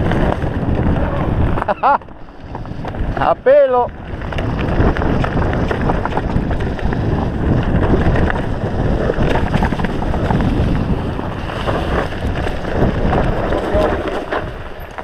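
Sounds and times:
bike clicks and knocks: 0:00.0 - 0:03.3, 0:03.9 - 0:15.0
tyres rolling over dirt and leaves: 0:00.0 - 0:15.0
wind rushing on microphone: 0:00.0 - 0:15.0.

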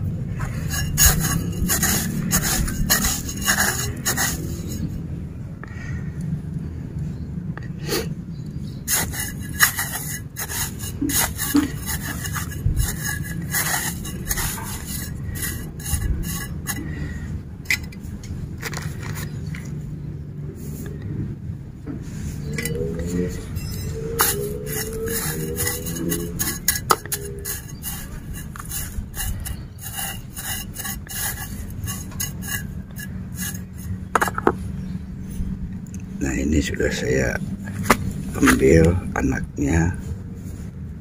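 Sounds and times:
metal blade scraping dry soil: 0:00.4 - 0:05.0, 0:08.9 - 0:18.0, 0:18.6 - 0:19.6, 0:22.4 - 0:34.4, 0:37.7 - 0:39.0.

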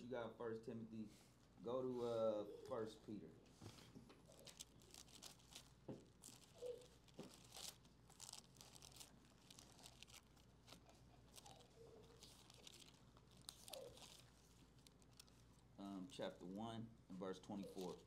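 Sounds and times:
thin pages rustling: 0:03.5 - 0:15.6, 0:17.6 - 0:18.0.

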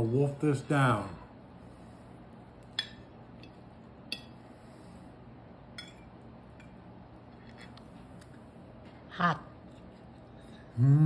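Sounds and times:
fork clinking on plate: 0:05.8 - 0:06.8.

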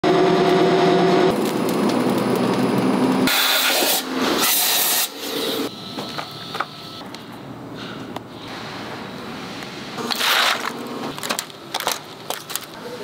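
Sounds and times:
roll mill whine: 0:00.0 - 0:07.1
dense mechanical noise: 0:00.0 - 0:13.0.

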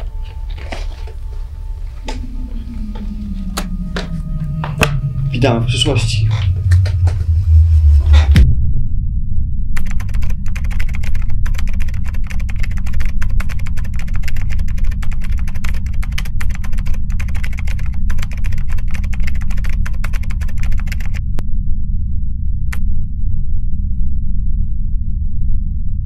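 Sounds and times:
steady low drone: 0:00.0 - 0:26.0
rapid keyboard typing clicks: 0:09.8 - 0:21.2.

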